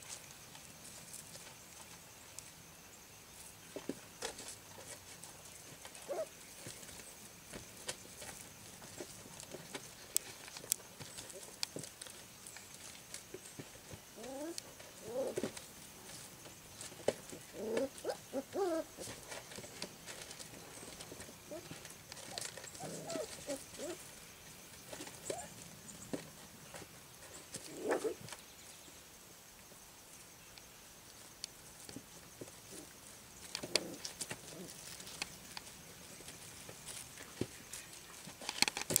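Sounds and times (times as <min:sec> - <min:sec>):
puppy paws on gravel: 0:03.7 - 0:28.4, 0:31.2 - 0:39.0
puppies whining: 0:06.0 - 0:06.3, 0:14.2 - 0:15.4, 0:17.5 - 0:19.1, 0:21.5 - 0:24.0.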